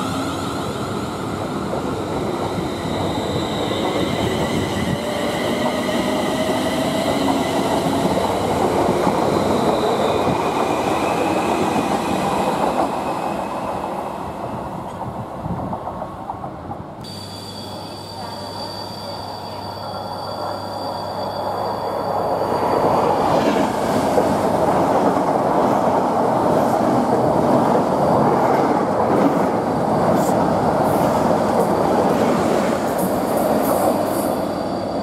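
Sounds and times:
train wheels rumbling on rails: 0.0s - 17.0s
train whine rising in pitch: 17.0s - 24.0s.

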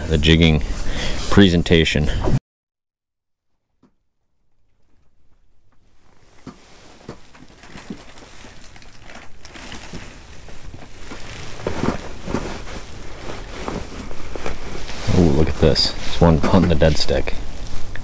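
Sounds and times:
wind rustling fabric walls: 4.4s - 18.0s.

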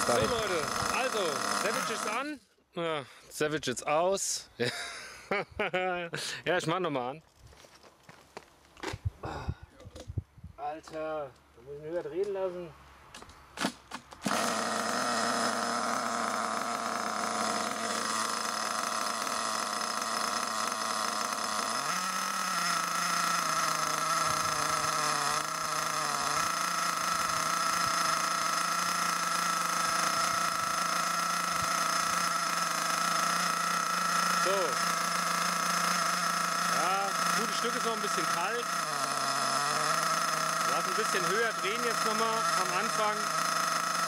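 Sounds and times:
nitro engine idling: 0.0s - 2.4s, 14.3s - 44.0s.

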